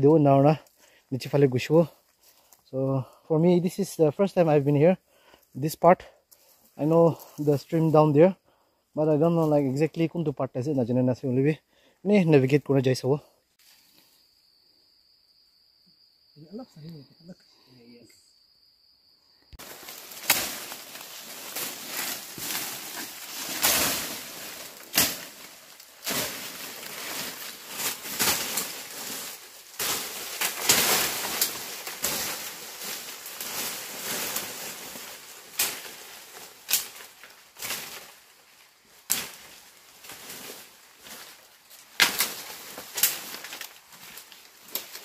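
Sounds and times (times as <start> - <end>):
footsteps through undergrowth: 1.6 - 3.2, 6.2 - 8.2, 19.5 - 45.0
dry leaves rustling: 19.6 - 45.0
twigs snapping: 19.6 - 45.0.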